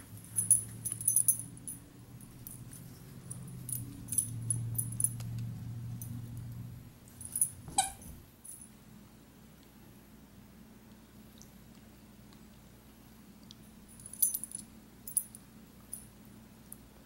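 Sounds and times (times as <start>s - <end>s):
low steady hum: 0.0s - 17.0s
clinking and jangling clicks: 0.1s - 8.7s, 13.9s - 16.1s
toy squeaker squeak: 7.7s - 8.1s.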